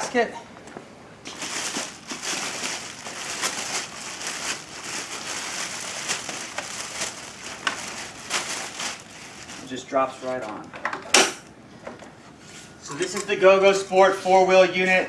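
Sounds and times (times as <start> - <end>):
plastic packaging crinkling: 1.2 - 9.9.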